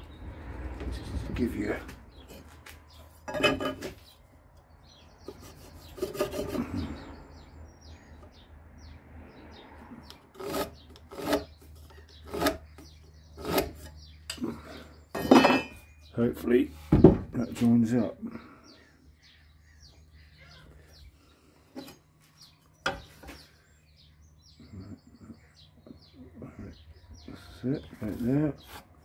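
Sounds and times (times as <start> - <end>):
pencil scratching on rough timber: 5.2 - 7.0, 10.4 - 14.0.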